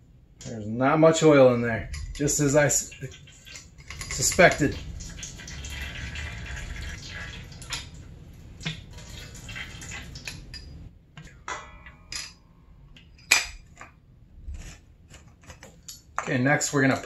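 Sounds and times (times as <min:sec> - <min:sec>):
oil dripping into metal bowl: 0:02.9 - 0:10.8
metal parts clinking on bowl: 0:03.5 - 0:04.8.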